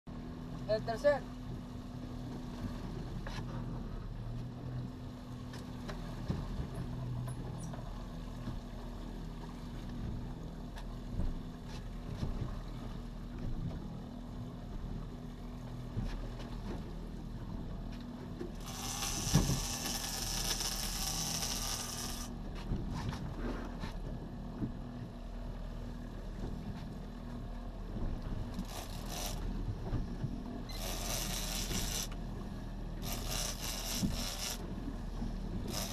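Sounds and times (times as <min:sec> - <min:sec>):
outboard motor running: 0:00.1 - 0:35.9
fishing reel clicking: 0:18.6 - 0:22.3, 0:28.6 - 0:29.4, 0:30.7 - 0:32.2, 0:33.0 - 0:34.6, 0:35.7 - 0:35.9.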